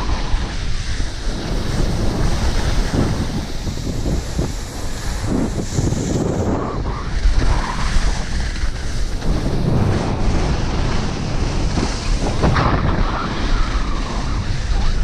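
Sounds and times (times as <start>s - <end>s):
skis scraping over snow: 0.0s - 15.0s
wind buffeting microphone: 0.0s - 15.0s.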